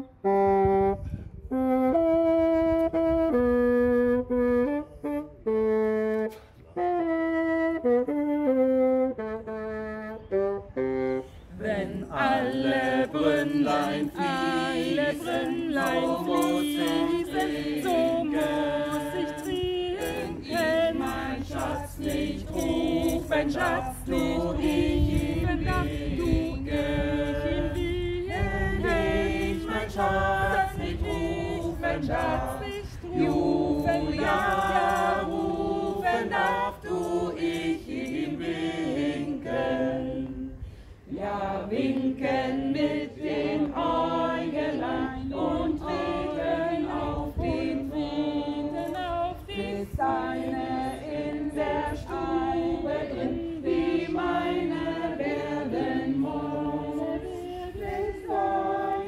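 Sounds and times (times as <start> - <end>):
bassoon melody: 0.0 - 11.4
group of people singing: 11.4 - 59.0.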